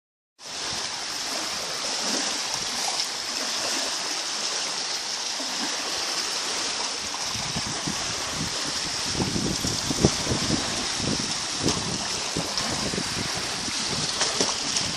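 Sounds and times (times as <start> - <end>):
waves lapping on pebble shore: 0.4 - 14.9
wind buffeting on microphone: 6.7 - 14.9.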